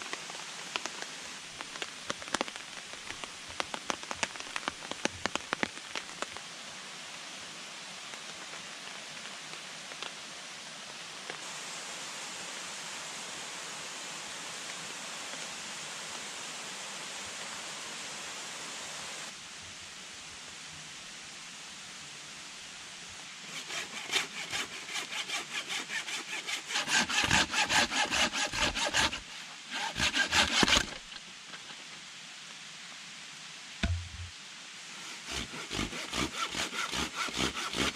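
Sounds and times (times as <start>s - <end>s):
hand saw cutting wood: 23.5s - 31.2s, 35.0s - 37.9s.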